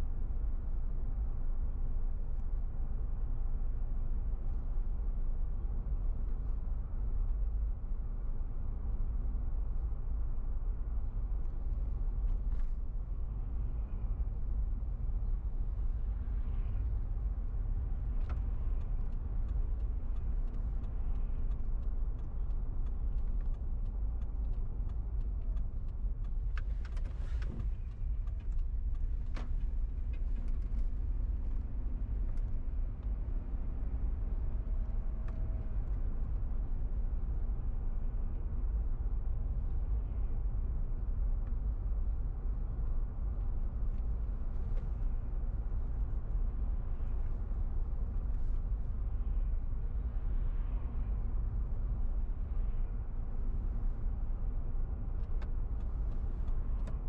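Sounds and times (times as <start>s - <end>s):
car engine and road rumble: 0.0s - 57.0s
faint clicks: 18.1s - 31.4s.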